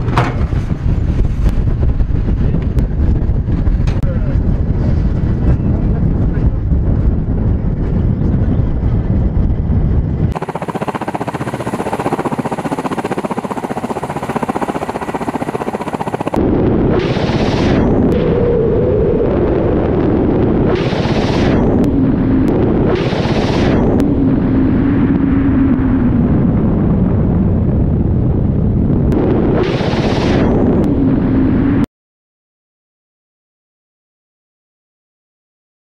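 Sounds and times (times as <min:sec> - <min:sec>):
helicopter engines and rotors: 0:00.0 - 0:31.8.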